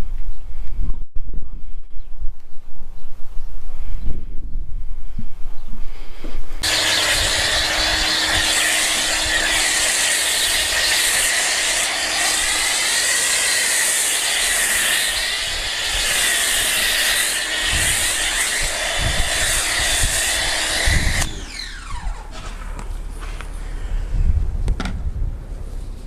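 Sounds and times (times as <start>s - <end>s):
pressure washer foam spray hiss: 6.6s - 21.2s.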